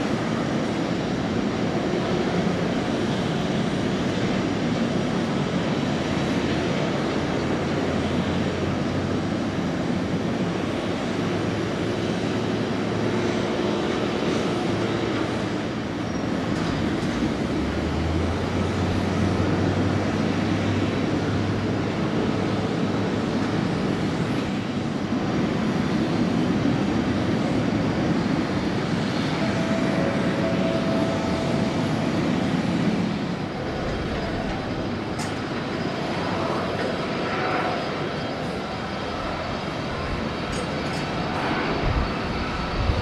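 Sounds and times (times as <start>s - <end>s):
jet engines idling: 0.0s - 43.0s.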